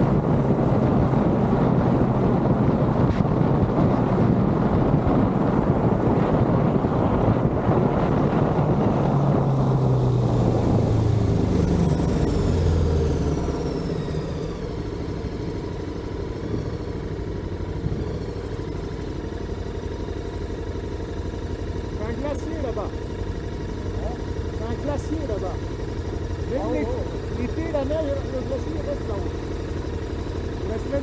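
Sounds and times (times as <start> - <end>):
wind noise on microphone: 0.0 - 13.2
motorcycle engine: 0.0 - 31.0.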